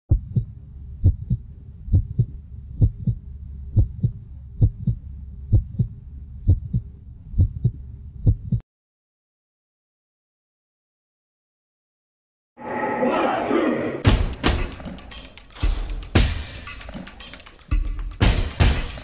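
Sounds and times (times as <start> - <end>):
heartbeat thumps: 0.1 - 8.6
low steady hum: 0.1 - 8.6.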